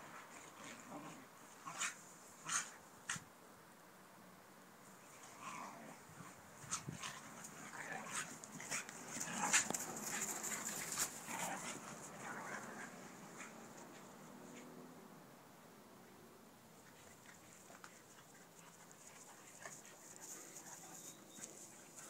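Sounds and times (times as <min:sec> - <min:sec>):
scuffling rustles: 0:06.2 - 0:14.7, 0:16.8 - 0:22.0.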